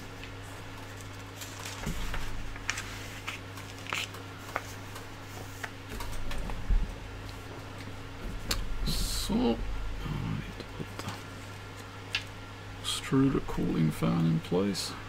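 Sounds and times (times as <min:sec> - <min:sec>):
steady low hum: 0:00.0 - 0:15.0
paper pages rustling: 0:00.2 - 0:06.6.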